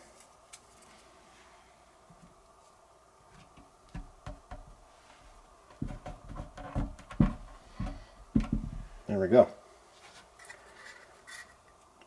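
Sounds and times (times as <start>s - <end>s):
dull knocks on wooden box: 5.8s - 9.0s.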